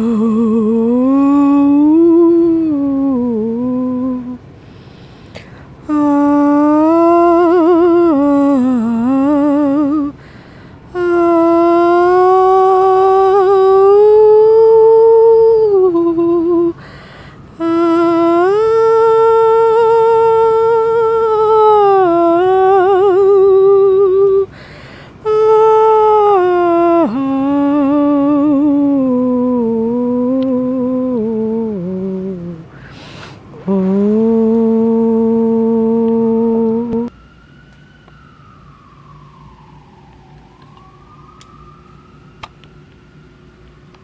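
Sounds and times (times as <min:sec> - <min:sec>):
woman humming: 0:00.0 - 0:04.4, 0:05.4 - 0:10.2, 0:10.9 - 0:16.9, 0:17.6 - 0:24.6, 0:25.2 - 0:37.1.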